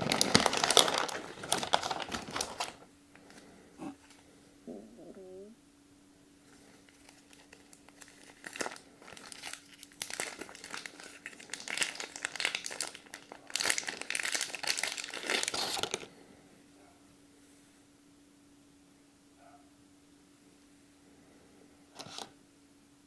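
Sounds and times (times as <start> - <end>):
cellophane crinkling: 0.0 - 4.2, 6.6 - 16.1, 22.0 - 22.4.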